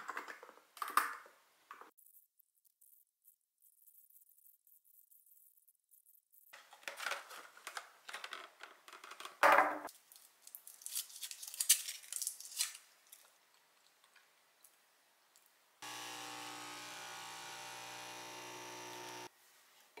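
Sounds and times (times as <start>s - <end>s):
foil wrapper crinkling: 9.9s - 13.4s.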